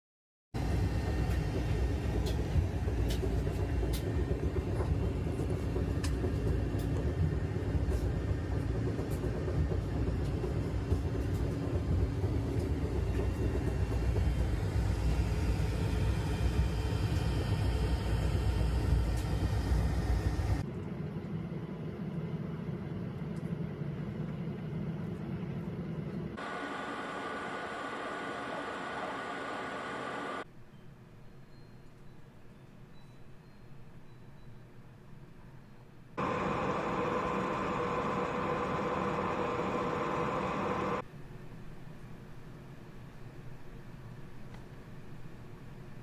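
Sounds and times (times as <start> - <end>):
printer rumble and hum: 36.2 - 41.0.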